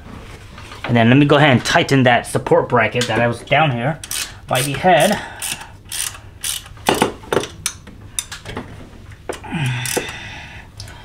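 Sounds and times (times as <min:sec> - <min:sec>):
ratchet wrench clicking: 0:04.0 - 0:08.3, 0:09.8 - 0:10.1.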